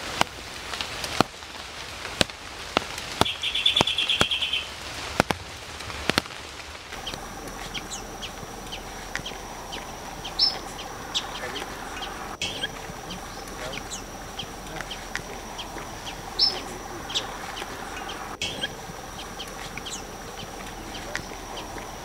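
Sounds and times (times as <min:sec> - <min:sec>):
steady high hum: 0:06.5 - 0:22.0
finch trill: 0:07.0 - 0:22.0.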